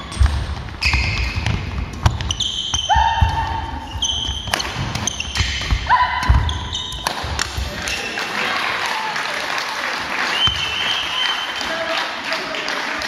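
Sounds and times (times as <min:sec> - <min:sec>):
shoe squeaks: 0:00.0 - 0:08.2
racket striking shuttlecock: 0:00.1 - 0:08.0
people clapping: 0:07.6 - 0:13.0.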